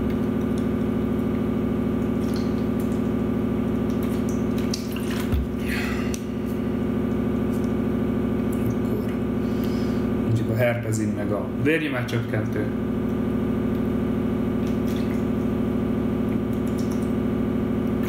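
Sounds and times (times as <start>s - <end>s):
steady low hum: 0.0s - 18.0s
person gulping water: 3.8s - 9.4s.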